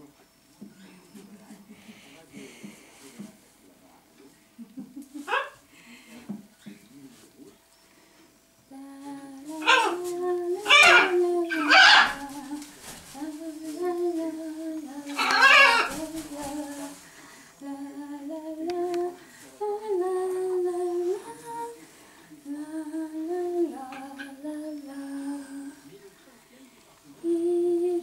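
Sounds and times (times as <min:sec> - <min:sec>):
woman humming: 0:08.7 - 0:17.0, 0:27.2 - 0:28.0.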